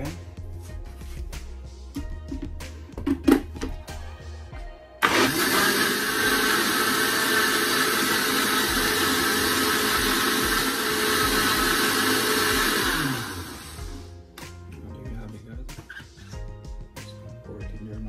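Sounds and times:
blender motor running: 5.0 - 14.1.

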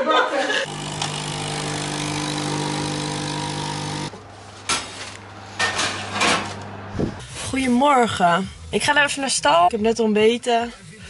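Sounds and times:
milk frother whirring: 0.6 - 4.1.

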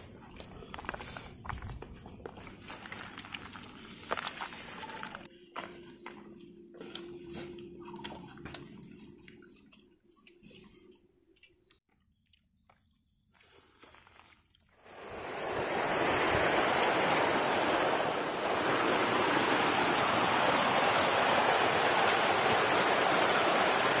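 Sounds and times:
water rushing down rocky stream: 14.9 - 24.0.

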